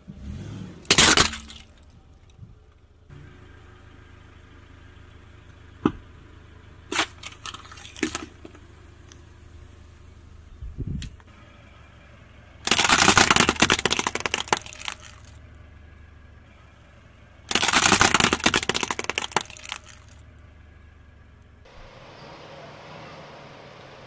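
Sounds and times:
plastic toy crunching under tyre: 0.9 - 1.8, 6.9 - 8.6, 12.6 - 15.4, 17.5 - 20.2.

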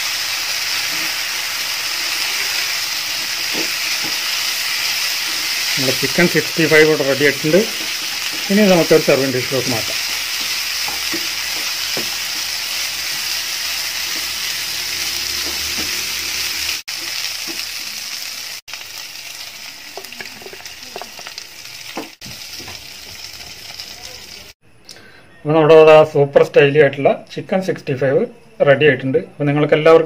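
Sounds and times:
chicken sizzling in oil: 0.0 - 24.6
spatula scraping pan: 0.7 - 17.7.

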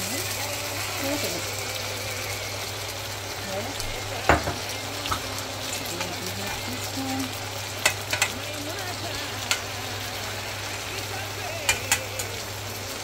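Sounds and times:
food sizzling in a skillet: 0.0 - 13.0
spoon knocking against pan: 4.2 - 5.2, 7.8 - 8.4, 11.7 - 12.1.

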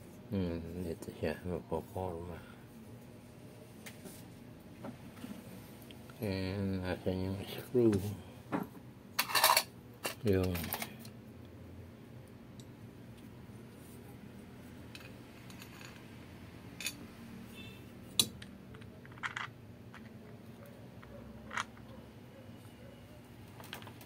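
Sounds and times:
metal parts clinking on workbench: 16.8 - 17.0.

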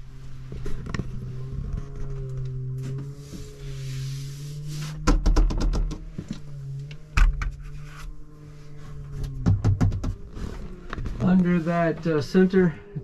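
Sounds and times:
steady low hum: 0.0 - 13.0
rattle of knocks: 5.0 - 6.2, 9.3 - 10.2.

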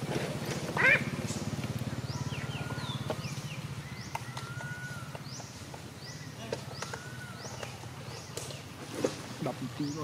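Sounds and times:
thin whistles and clicks: 4.1 - 4.8.

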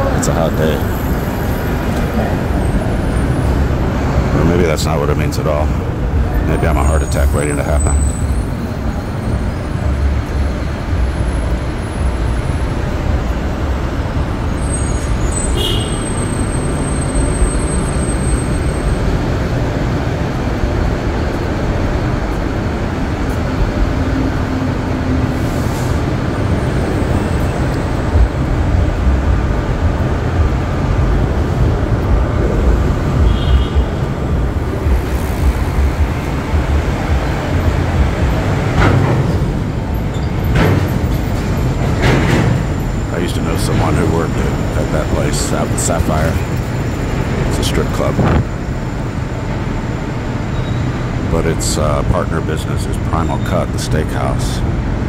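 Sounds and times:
heavy road traffic: 0.0 - 55.0
brief high squeak: 50.5 - 51.0.

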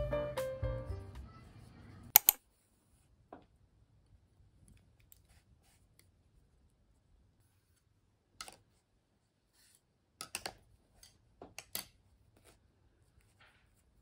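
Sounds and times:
knitting needles clicking on wood: 2.1 - 2.4.

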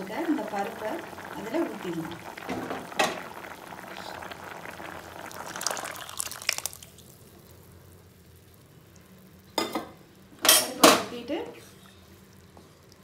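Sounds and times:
soup bubbling and popping: 0.0 - 10.4, 11.7 - 13.0
wet plops: 1.4 - 7.2.

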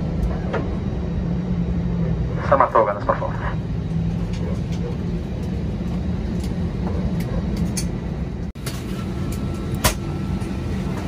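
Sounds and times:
vehicle interior rumble: 0.0 - 11.0.

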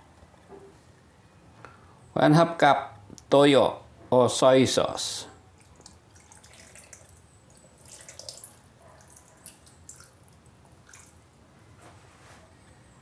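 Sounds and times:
liquid trickling and dripping: 5.6 - 11.3.

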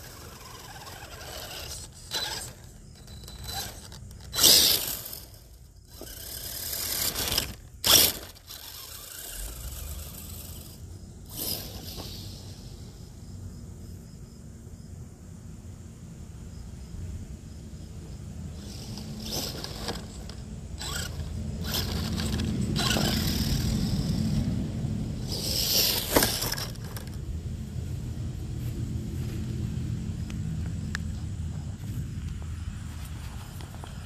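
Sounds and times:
tyres on grass: 0.0 - 12.3, 18.5 - 24.4, 25.2 - 34.0
model truck motor drone: 0.0 - 13.2, 18.5 - 27.3.

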